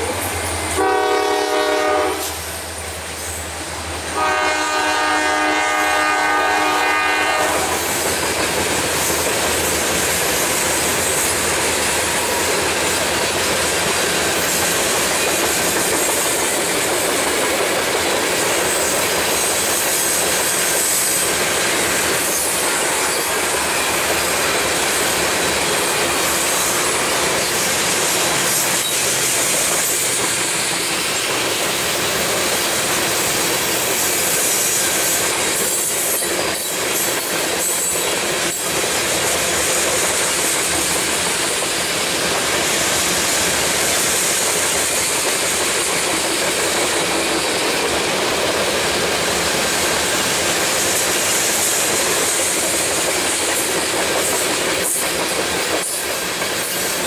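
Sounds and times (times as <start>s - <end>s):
train wheels clacking on rails: 0.0s - 57.0s
locomotive horn: 0.6s - 2.4s, 4.1s - 7.9s.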